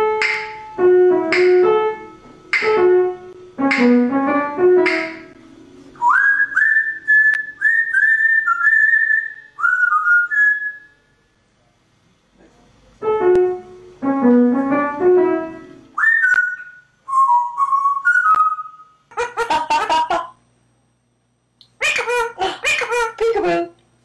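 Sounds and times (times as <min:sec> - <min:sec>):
parrot whistling a tune: 0:06.0 - 0:11.0, 0:16.0 - 0:19.0.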